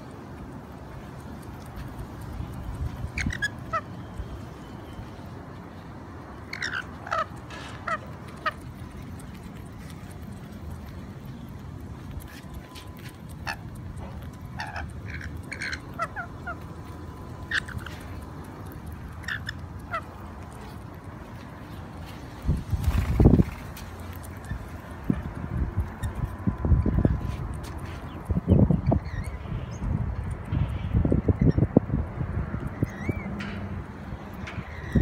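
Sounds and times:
lorikeets chirping and squawking: 3.0s - 4.1s, 6.4s - 8.6s, 14.5s - 16.7s, 17.4s - 18.2s, 19.1s - 20.2s, 28.1s - 29.9s, 32.8s - 33.4s.

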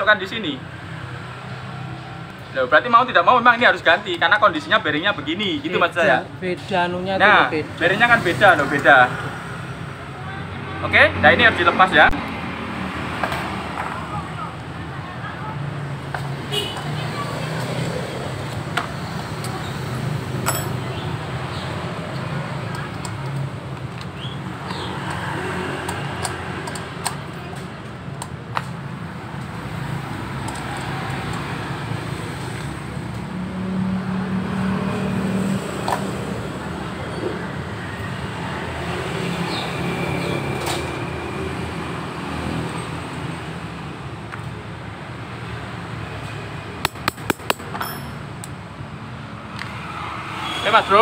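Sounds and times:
low rumble of traffic: 0.0s - 51.0s
hand tools clinking: 20.4s - 20.8s, 46.8s - 48.5s.

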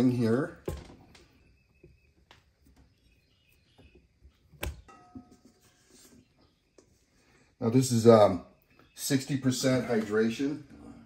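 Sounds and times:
metal bowl knock: 4.8s - 5.4s
faint metallic ring: 4.9s - 5.5s.

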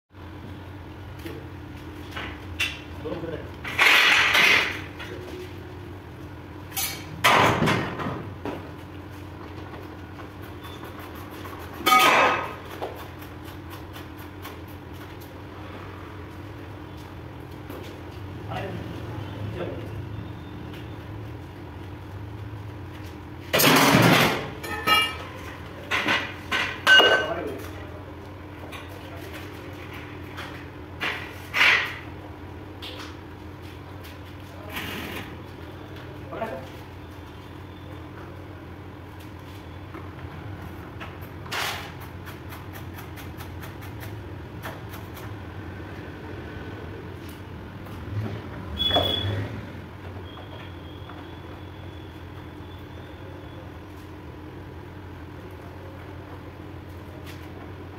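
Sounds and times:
ringing metal clanks: 24.6s - 25.4s.

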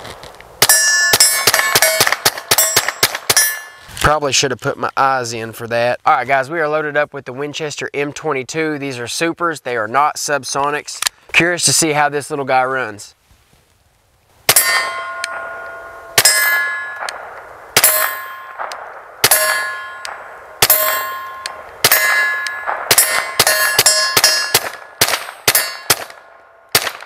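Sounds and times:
suppressed pistol shots: 0.6s - 3.7s, 14.5s - 27.0s
steel target clanging: 0.6s - 3.9s, 14.5s - 26.3s.

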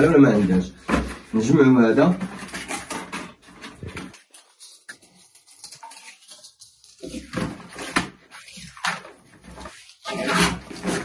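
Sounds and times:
objects knocking and clattering: 2.0s - 8.2s.

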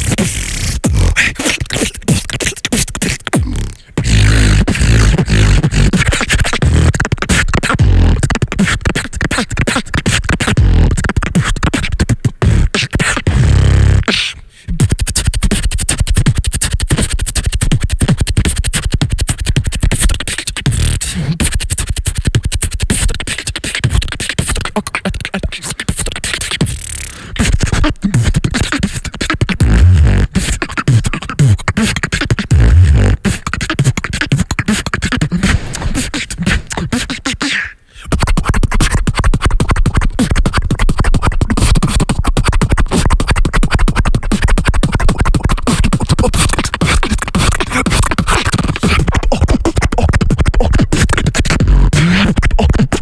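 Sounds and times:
deep bass tones: 0.0s - 1.3s, 13.3s - 14.0s, 32.5s - 33.2s
beatboxing into microphone: 0.0s - 53.0s.

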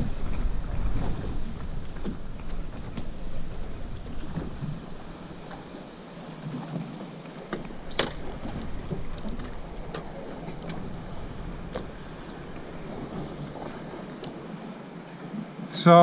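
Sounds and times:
wind buffeting microphone: 0.0s - 15.6s
water washing against hull: 0.0s - 16.0s
sharp clicks and knocks: 7.5s - 14.4s.

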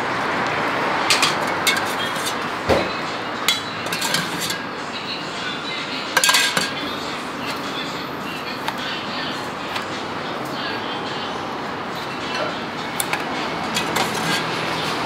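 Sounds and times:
steady background noise: 0.0s - 15.0s
metal ladle clinking on pots: 1.1s - 2.4s, 3.4s - 4.6s, 6.1s - 6.8s, 12.3s - 14.6s.

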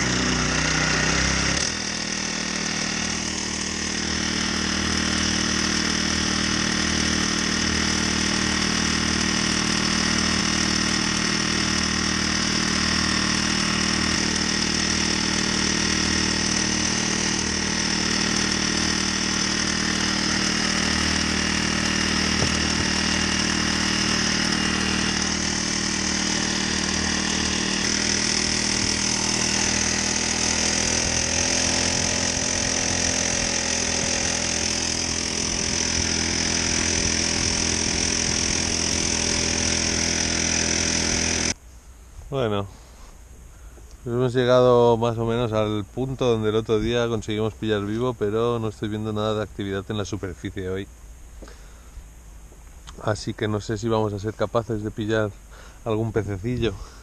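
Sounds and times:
small boat engine running: 0.0s - 41.6s.

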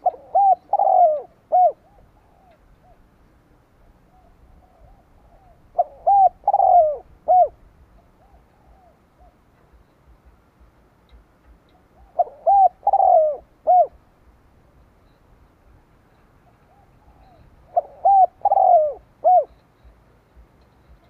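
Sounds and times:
dove cooing: 0.0s - 9.5s, 11.7s - 14.2s, 16.4s - 20.0s.

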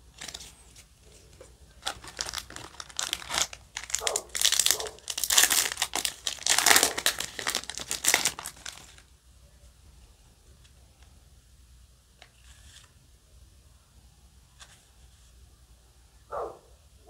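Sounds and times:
foil wrapper crinkling and tearing: 0.0s - 9.1s.

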